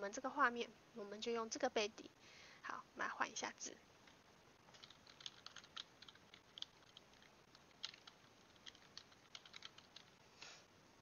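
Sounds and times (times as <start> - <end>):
computer keyboard typing: 4.0 - 10.2.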